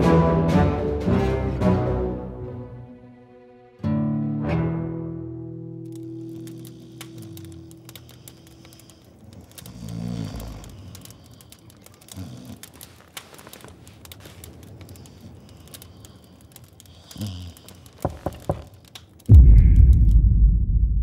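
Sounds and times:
faint crackling: 5.8s - 20.2s
loud low boom: 19.3s - 21.0s.

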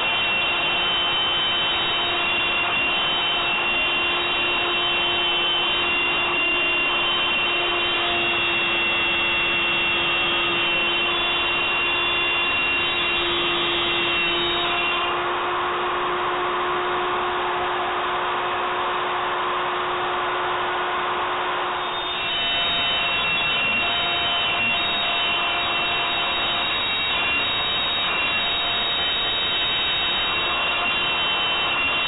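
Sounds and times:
router bit cutting wood: 0.0s - 15.2s, 21.8s - 32.0s
router high whine: 0.0s - 32.0s.

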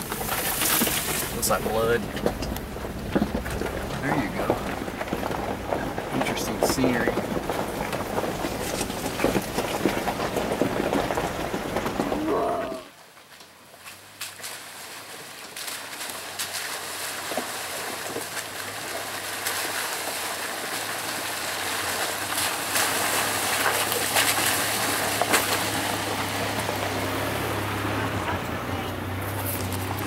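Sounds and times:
stones knocking: 0.0s - 12.5s
truck engine running: 0.0s - 12.6s, 13.9s - 30.0s
tyres splashing water: 13.8s - 30.0s.

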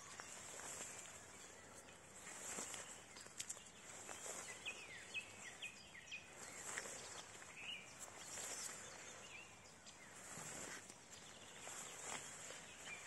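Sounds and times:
footsteps in grass: 0.0s - 13.0s
grass swishing against camera: 2.2s - 4.8s, 6.3s - 9.4s, 10.1s - 13.0s.

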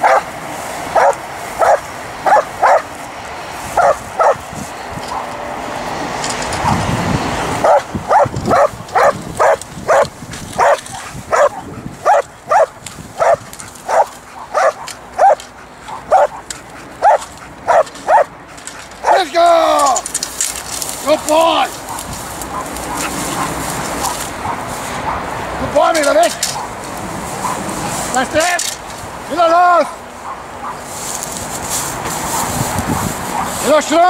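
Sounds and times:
dog barking sharply: 0.0s - 0.3s, 1.0s - 2.9s, 3.8s - 4.4s, 7.6s - 18.3s.

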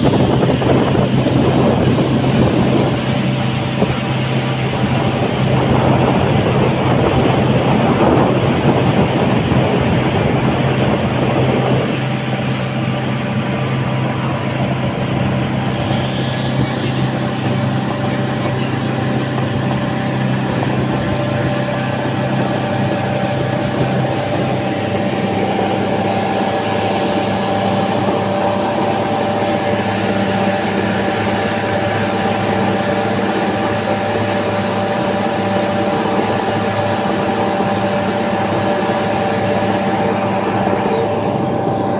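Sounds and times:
speedboat engine running: 0.0s - 41.9s
wind and water rushing: 0.0s - 41.9s.

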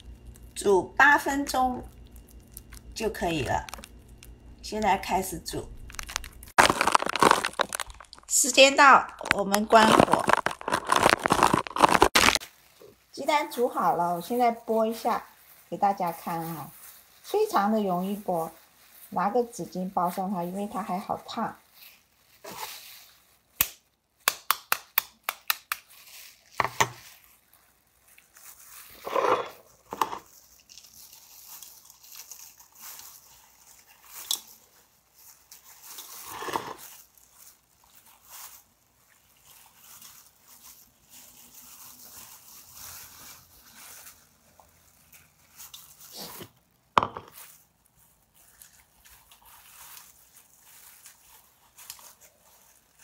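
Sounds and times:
plastic gloves and napkin crinkling: 0.0s - 53.0s
eggshell cracking clicks: 5.8s - 8.3s
taps and crackles: 9.0s - 12.4s, 23.6s - 25.8s.

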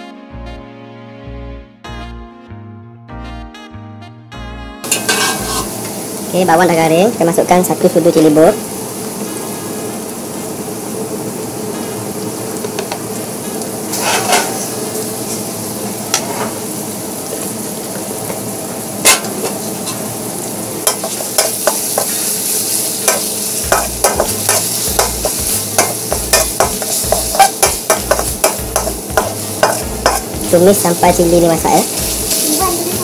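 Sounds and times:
paste sizzling in hot oil: 4.8s - 33.0s
utensil scraping a pan: 4.9s - 5.8s, 13.9s - 14.7s, 23.1s - 30.6s.

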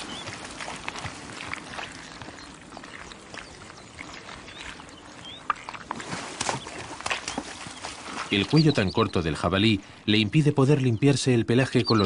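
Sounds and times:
splashing in muddy water: 0.0s - 8.7s.

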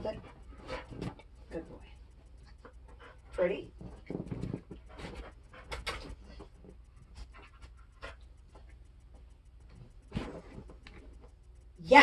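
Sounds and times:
dog panting softly: 2.1s - 3.8s, 4.6s - 8.8s.

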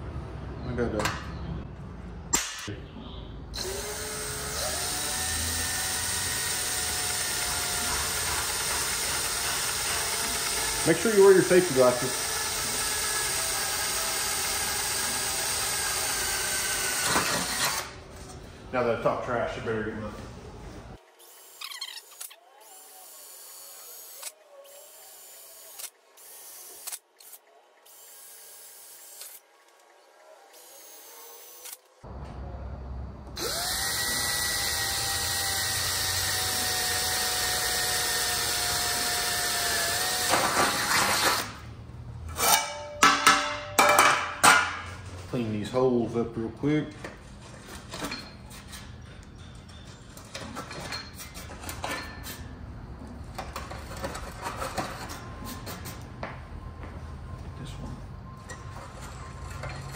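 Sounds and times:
cordless drill motor whine: 3.6s - 10.9s, 33.4s - 41.4s.

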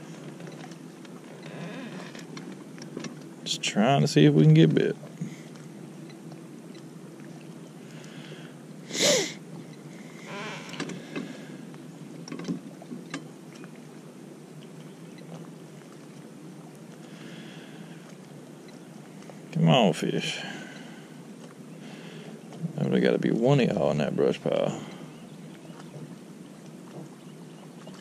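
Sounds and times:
boat motor humming: 0.0s - 28.0s
faint water noise: 0.0s - 28.0s
person sniffing: 8.9s - 9.4s.

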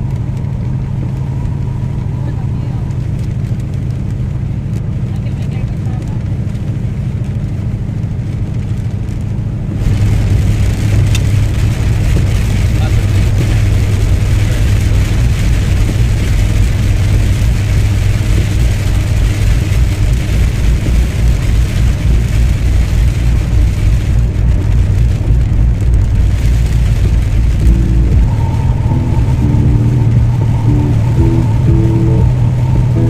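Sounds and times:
car engine and road noise: 0.0s - 33.0s
music with held notes: 27.7s - 33.0s.

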